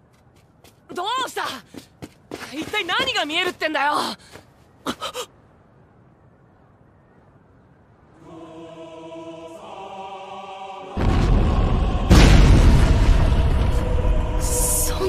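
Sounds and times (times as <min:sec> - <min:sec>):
wordless choir-like singing: 0:08.1 - 0:15.0
deep thunder-like boom: 0:11.0 - 0:15.0
faint low rumble: 0:11.0 - 0:15.0.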